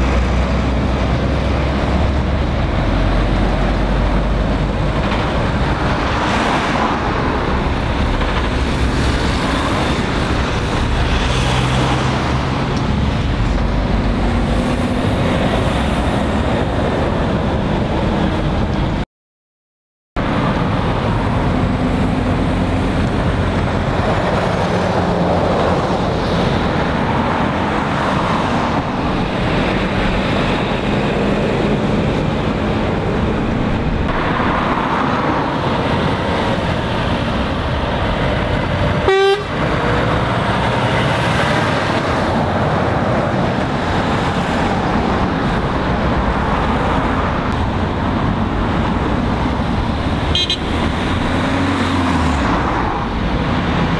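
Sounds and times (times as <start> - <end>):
road traffic driving past: 0.0 - 19.0, 20.2 - 53.9
vehicle horn toot: 39.0 - 39.6, 50.3 - 50.8.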